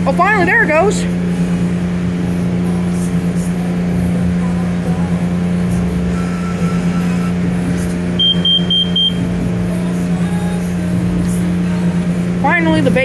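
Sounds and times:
car wash machinery drone: 0.0 - 13.0
high-pitched electronic beeps: 6.1 - 7.5, 8.2 - 9.2.

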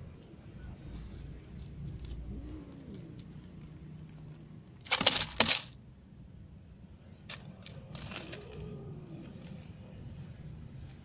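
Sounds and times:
cats crunching dry food: 1.3 - 5.8, 7.3 - 9.8.

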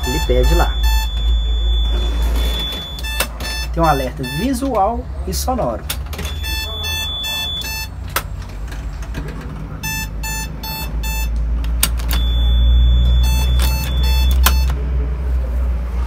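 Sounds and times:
seat-belt warning buzzer beeps: 0.0 - 4.8, 6.2 - 8.0, 9.8 - 14.8.

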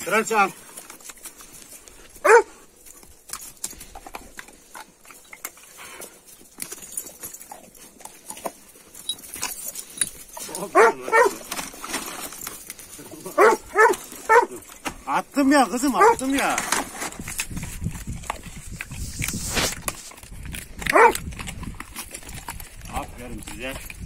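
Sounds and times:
dogs yelping and whining: 2.2 - 2.6, 8.7 - 11.4, 13.3 - 14.7, 15.8 - 16.3, 20.8 - 21.2.

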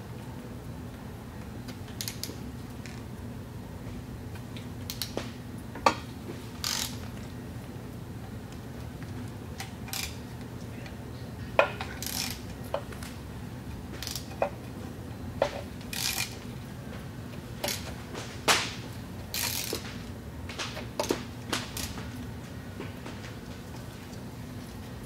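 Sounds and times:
hand ratchet clicking: 6.6 - 7.0, 12.0 - 12.4, 14.0 - 14.5, 15.9 - 16.4, 17.6 - 17.9, 19.3 - 19.8.

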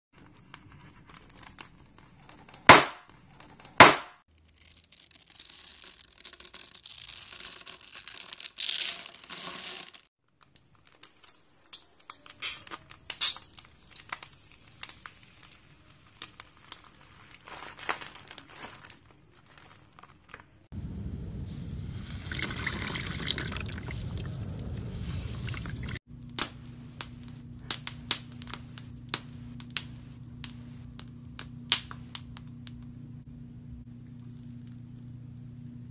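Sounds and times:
foil crackling and crinkling: 12.2 - 31.3.

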